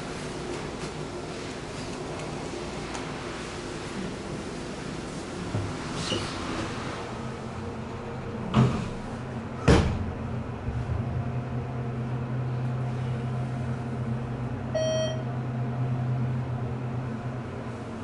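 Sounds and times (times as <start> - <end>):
elevator doors knocking shut: 9.6 - 10.4
single-note elevator chime: 14.8 - 15.3.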